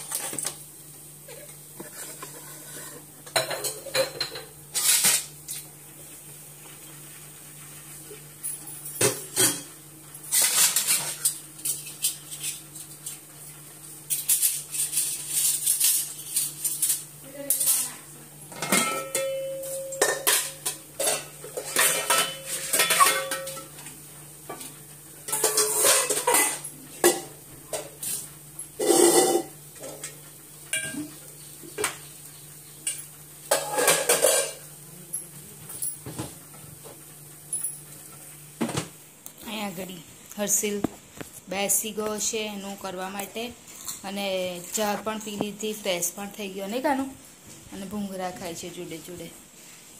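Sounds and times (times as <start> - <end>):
metal dishes clattering: 1.3 - 5.3, 8.5 - 12.6, 18.5 - 23.8, 24.5 - 32.0, 32.8 - 34.7.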